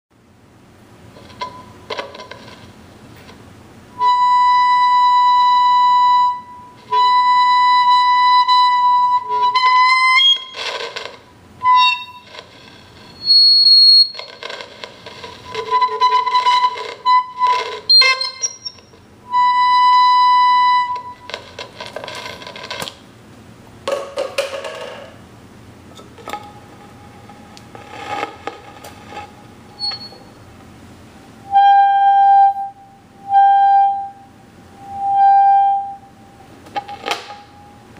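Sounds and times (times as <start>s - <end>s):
high-pitched feedback whistle: 4.0s - 22.4s, 29.2s - 30.5s, 31.4s - 36.4s, 37.3s - 37.9s
microphone scratching against tube: 9.3s - 19.0s, 20.9s - 23.0s, 26.2s - 30.4s.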